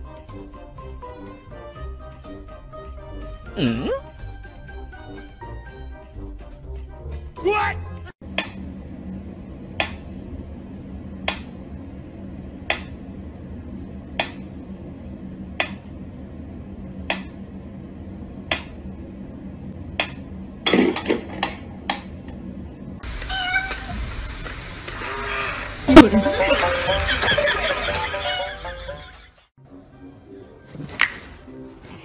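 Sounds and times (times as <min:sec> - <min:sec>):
knocks and clatter: 0:20.0 - 0:22.4
cat meowing: 0:23.3 - 0:23.9.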